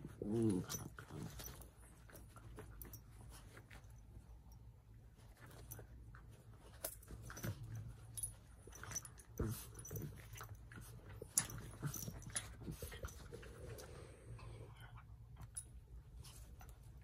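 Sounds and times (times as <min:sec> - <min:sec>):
dogs snapping and scuffling: 0:00.0 - 0:04.3, 0:05.1 - 0:14.0.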